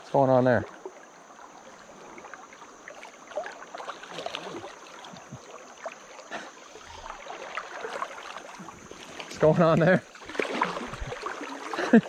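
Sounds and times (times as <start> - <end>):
river current rushing: 0.8 - 12.0
fish splashing at surface: 10.2 - 11.9.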